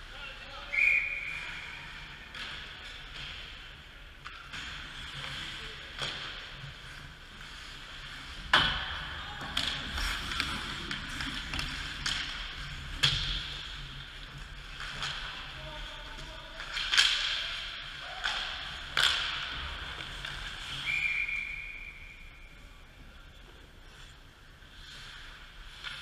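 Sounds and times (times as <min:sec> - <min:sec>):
puck and sticks cracking: 0:02.2 - 0:22.2
skates scraping on ice: 0:04.5 - 0:26.0.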